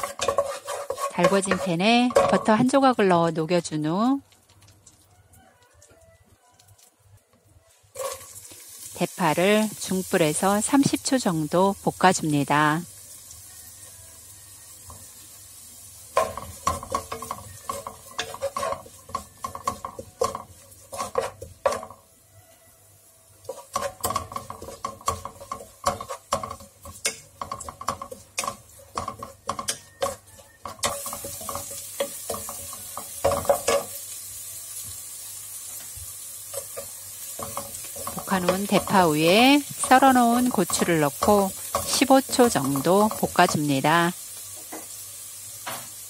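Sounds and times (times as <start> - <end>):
wooden spatula scraping a pot: 0.0 - 2.9, 7.7 - 8.6, 16.1 - 22.0, 23.4 - 34.9, 35.7 - 43.8
butter sizzling: 0.0 - 5.1, 7.8 - 46.0.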